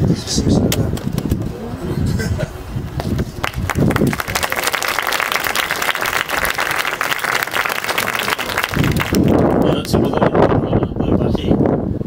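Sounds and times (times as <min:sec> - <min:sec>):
audience applauding: 0:03.1 - 0:10.1.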